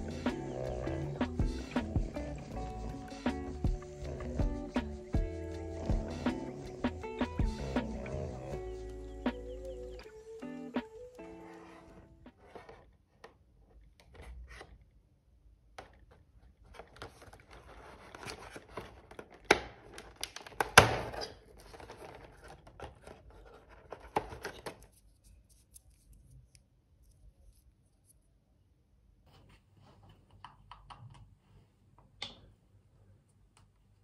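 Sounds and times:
papery rustling: 16.6 - 27.7.

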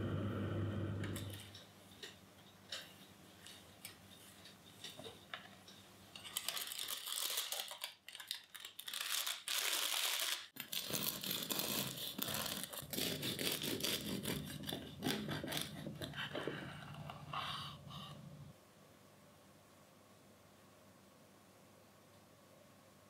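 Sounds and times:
parchment paper crinkling: 6.2 - 16.2
bread knife sawing crust: 10.9 - 16.3.

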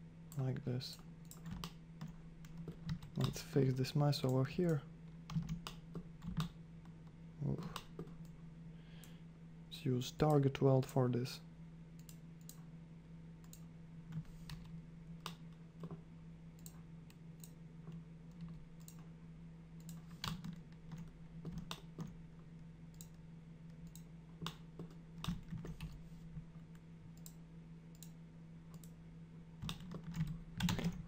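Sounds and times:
steady low hum: 0.0 - 31.0
computer mouse clicks: 4.2 - 6.6, 13.4 - 16.0, 16.6 - 19.1, 22.9 - 23.2, 27.2 - 29.0
keyboard keystrokes: 29.6 - 31.0.

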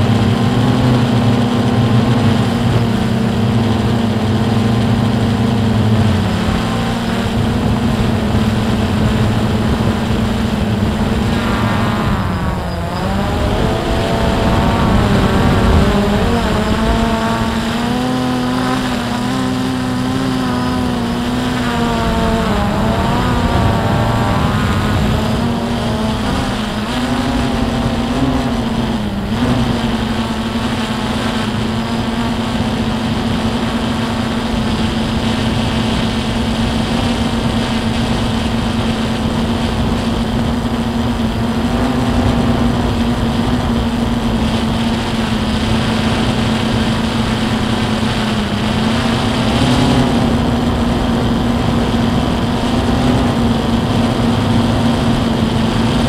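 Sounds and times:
drone propellers buzzing: 0.0 - 56.0.

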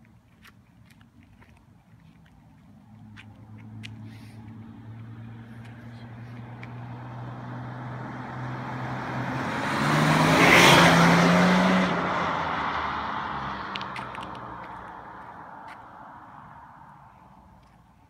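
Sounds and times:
car passing by under throttle: 3.6 - 16.9.

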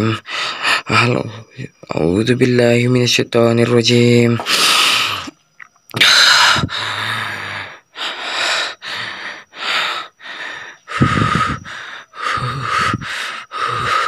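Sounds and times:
man breathing hard: 0.2 - 0.9, 4.4 - 5.3, 6.0 - 14.0.

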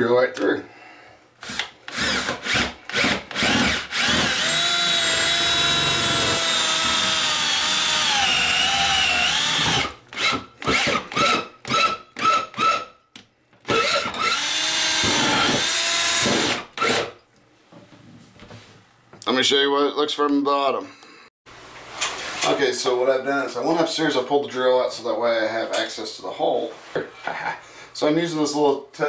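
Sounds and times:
cordless drill whining: 1.3 - 12.8, 13.7 - 17.1.

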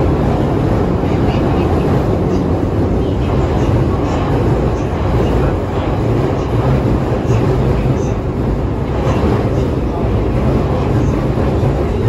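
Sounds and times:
subway train rumbling in tunnel: 0.0 - 12.0.

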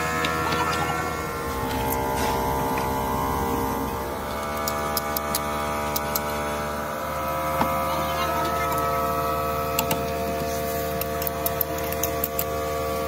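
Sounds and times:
electrical hum: 0.0 - 13.0
pliers clicking on metal: 11.0 - 12.5.

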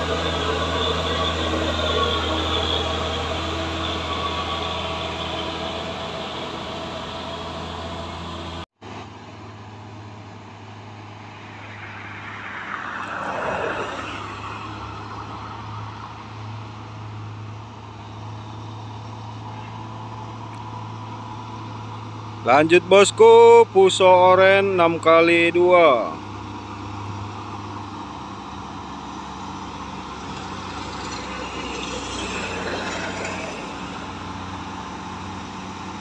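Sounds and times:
distant truck engine drone: 0.0 - 36.0
passing vehicle glide: 0.0 - 36.0
truck diesel engine passing: 0.0 - 36.0.

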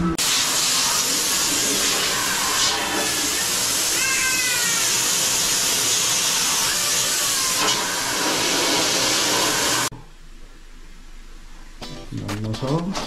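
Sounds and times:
high-pressure water jet hissing: 0.2 - 9.9.

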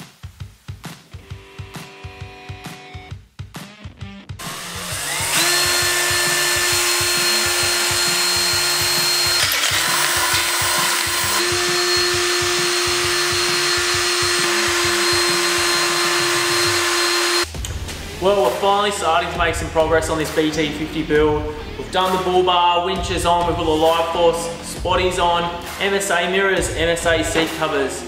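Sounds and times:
background music beat: 0.0 - 28.0
cordless drill whining: 4.4 - 17.5.

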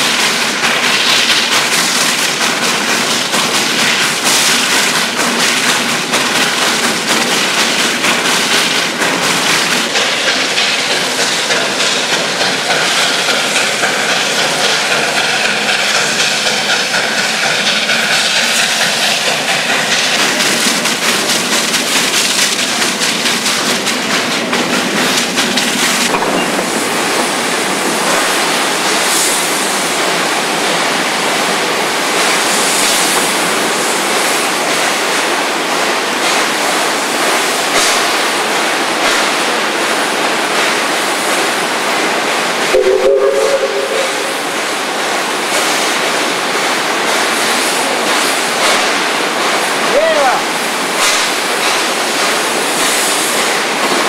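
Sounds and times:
steam train running: 0.0 - 54.0
two-note train whistle: 42.7 - 44.4.

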